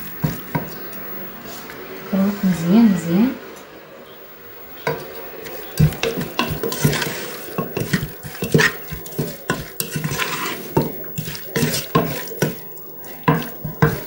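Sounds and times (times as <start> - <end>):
food stirred by hand in metal pot: 4.4 - 14.0.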